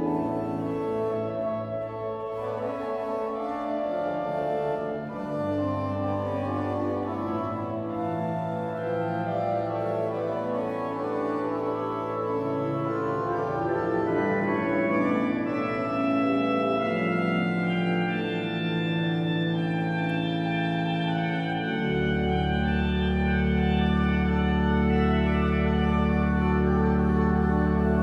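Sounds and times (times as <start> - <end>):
pipe organ playing: 0.0 - 28.0
deep organ pedal bass note: 16.8 - 28.0.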